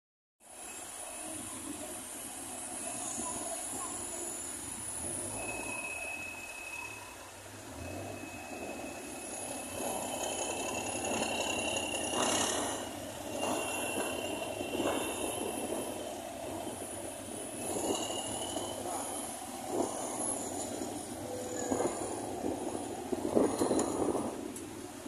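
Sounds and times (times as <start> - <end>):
high squeal: 0.5 - 24.4
diesel engines running: 0.5 - 25.0
machinery rattling: 7.8 - 25.0.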